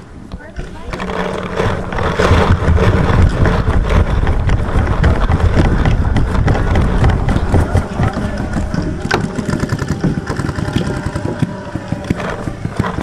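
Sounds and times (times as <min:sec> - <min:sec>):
microphone handling rumble: 0:00.0 - 0:13.0
wind on microphone: 0:00.0 - 0:13.0
paintball markers firing: 0:01.0 - 0:13.0.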